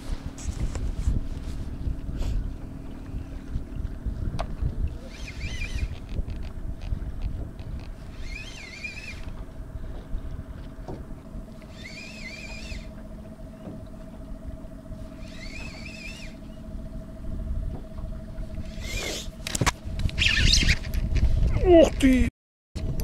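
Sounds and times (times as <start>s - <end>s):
faint steady hum: 0.0s - 23.0s
low rumble: 0.0s - 23.0s
spinning reel gears whining: 4.9s - 10.0s, 11.2s - 21.0s.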